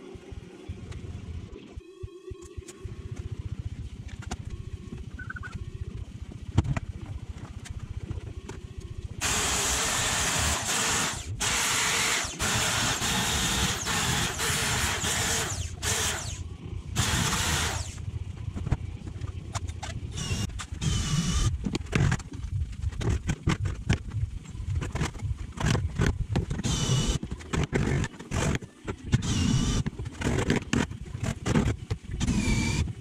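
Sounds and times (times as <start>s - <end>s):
power tool grinding metal: 9.2s - 16.4s, 17.0s - 18.0s
low rumble: 15.6s - 27.2s.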